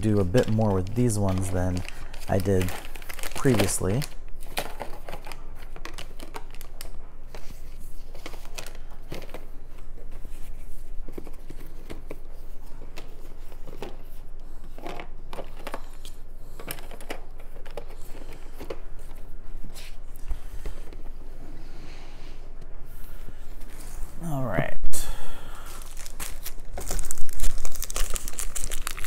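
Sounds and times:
packaging rustling and crinkling: 0.0s - 21.2s, 25.6s - 29.0s.

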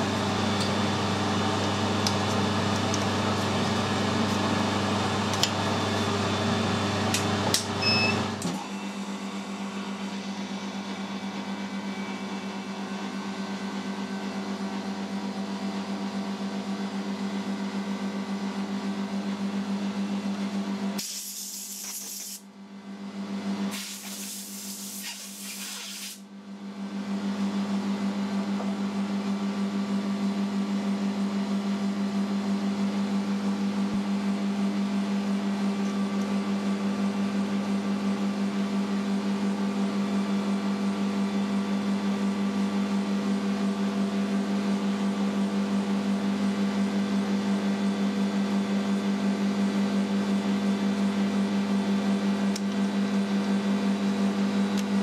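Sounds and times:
workshop machinery humming: 0.0s - 55.0s
short bursts of hiss: 21.0s - 22.4s.

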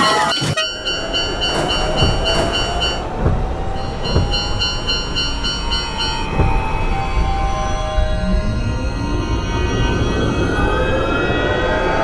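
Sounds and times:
level crossing bell ringing: 0.4s - 8.0s
train wheel clacks: 0.6s - 8.2s
electric train motor whine: 0.6s - 12.0s.

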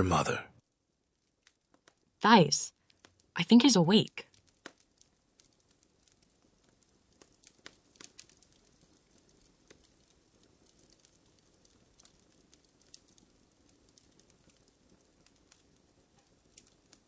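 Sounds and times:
faint scattered clicks and crackles: 0.5s - 17.0s.

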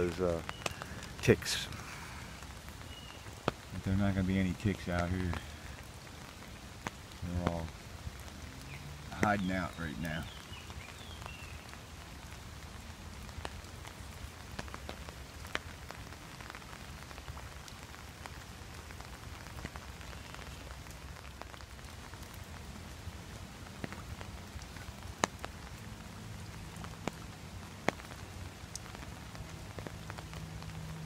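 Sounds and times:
rain on an umbrella: 0.0s - 31.0s
rain on river surface: 0.0s - 31.0s.

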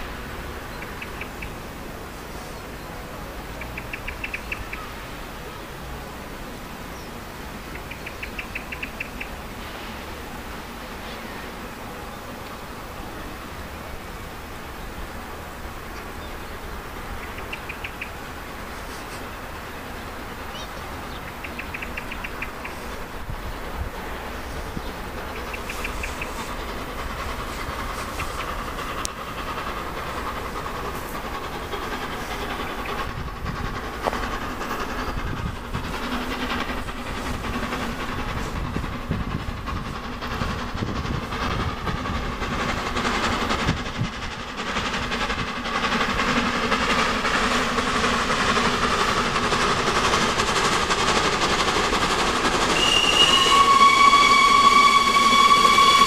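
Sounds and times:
steam locomotive running: 0.0s - 56.0s
steam whistle: 52.7s - 56.0s.

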